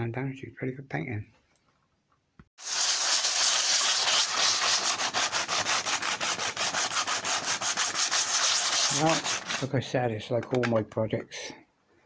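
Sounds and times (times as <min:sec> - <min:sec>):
sandpaper rubbing by hand: 0:02.6 - 0:09.8.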